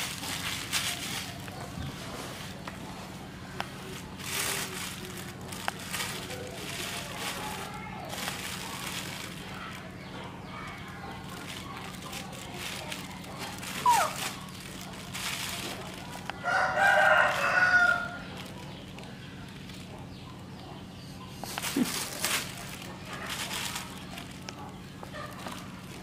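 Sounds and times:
plastic bag crinkling: 0.0s - 20.2s, 21.4s - 26.0s
rooster crowing: 16.4s - 18.3s.

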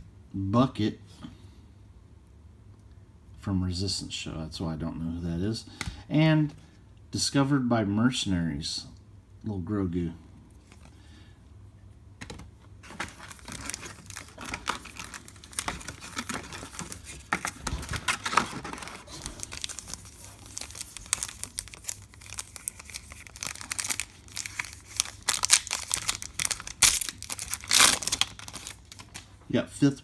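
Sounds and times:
foil wrappers crinkling: 12.8s - 29.3s
foil pack tearing open: 12.9s - 29.2s.

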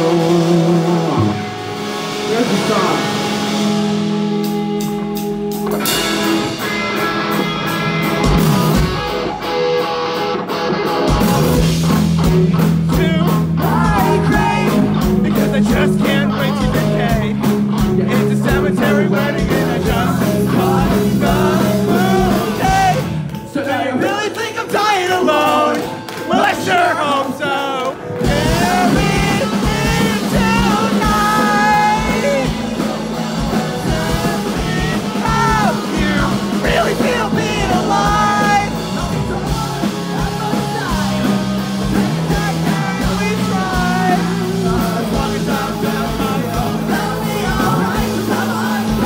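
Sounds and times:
rock band playing live: 0.0s - 49.0s
person singing: 12.3s - 49.0s.

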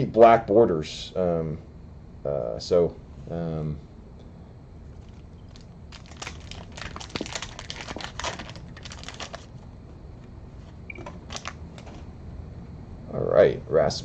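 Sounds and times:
wax paper wrapper crinkling and tearing: 5.0s - 9.6s, 11.2s - 12.0s.

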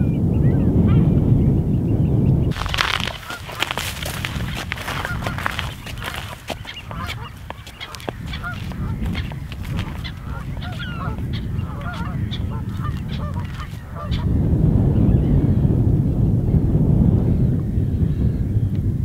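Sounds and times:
wind rumbling on microphone: 0.0s - 19.0s
waterbirds calling: 2.5s - 14.3s.

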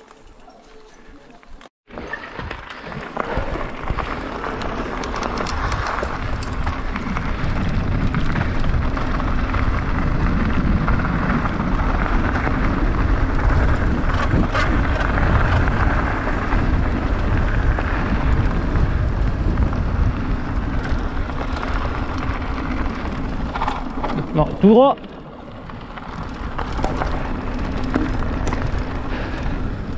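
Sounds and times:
bike tyres rolling on dirt: 0.0s - 29.9s
wind on microphone: 2.4s - 24.8s.

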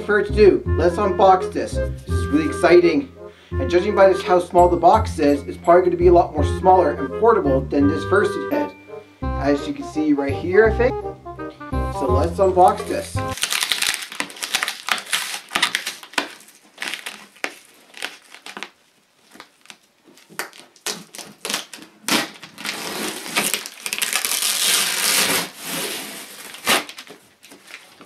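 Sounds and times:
packing tape crackling and ripping: 12.6s - 28.0s.

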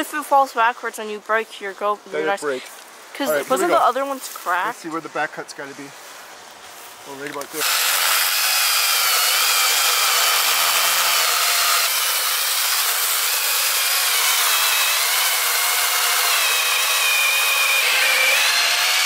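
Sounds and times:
electric chainsaw motor whine: 7.6s - 19.0s.

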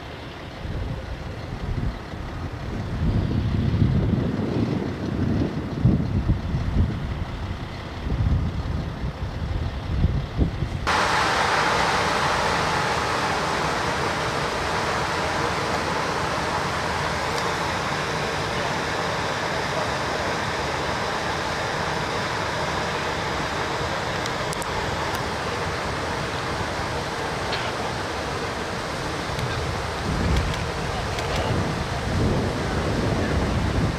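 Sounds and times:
loud gas venting hiss: 10.9s - 33.9s.

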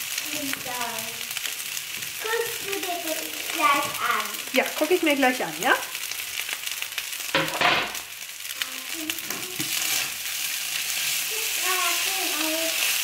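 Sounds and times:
rice sizzling in a frying pan: 0.0s - 13.0s
wooden spatula scraping pan: 9.2s - 11.6s.

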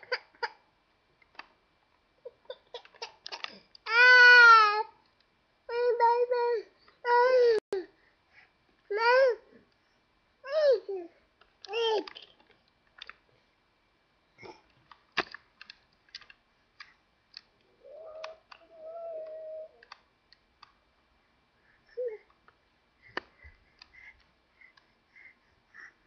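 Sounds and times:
baby vocalizing: 17.8s - 19.8s.

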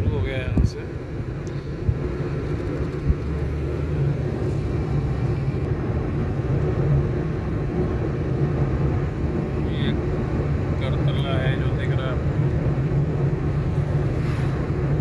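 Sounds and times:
car cabin road rumble: 0.0s - 15.0s.

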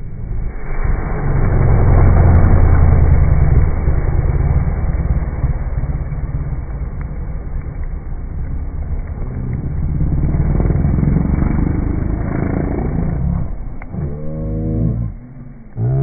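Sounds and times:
snowmobile engine rumbling: 0.0s - 16.0s
snow spraying: 0.2s - 13.8s.

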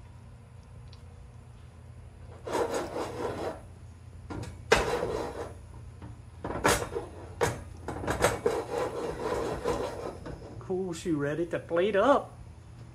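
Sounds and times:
metal pot scraping on stove grate: 2.3s - 3.7s, 4.7s - 5.6s, 6.6s - 10.7s.

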